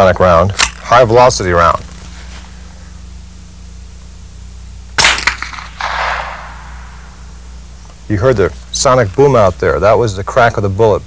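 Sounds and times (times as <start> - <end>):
faint drawn-out noise: 0.0 - 11.0
suppressed rifle shot crack: 5.0 - 8.0.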